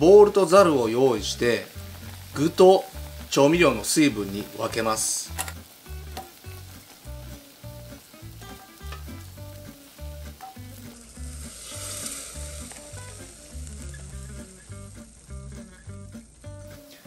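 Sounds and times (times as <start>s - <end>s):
liquid pouring hiss: 0.4s - 17.0s
background music with beat: 1.4s - 17.0s.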